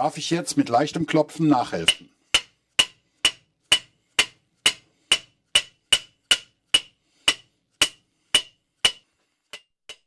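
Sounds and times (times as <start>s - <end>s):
hammer tapping metal: 1.7s - 10.0s.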